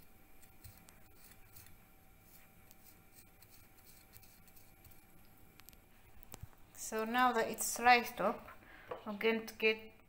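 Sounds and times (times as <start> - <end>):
knife scratching pork rind: 0.4 - 5.2.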